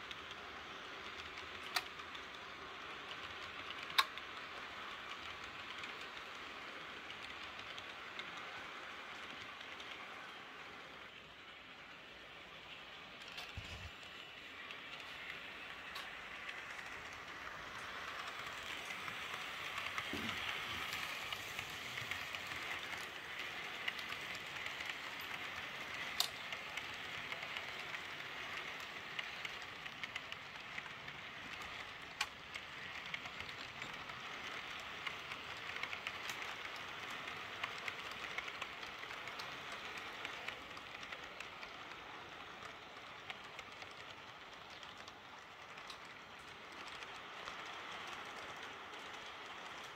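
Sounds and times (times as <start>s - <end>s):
model train wheels rustling on rails: 0.0s - 49.9s
clicks over rail joints: 13.2s - 49.9s.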